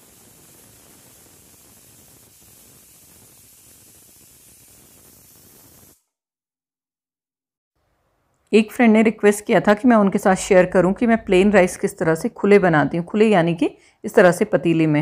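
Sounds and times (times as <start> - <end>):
faint steady hiss: 0.0 - 6.0.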